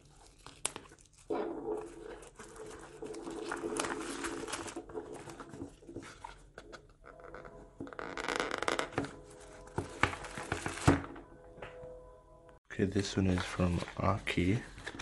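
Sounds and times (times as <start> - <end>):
plastic wrap crinkling: 0.0 - 5.8, 8.2 - 11.0.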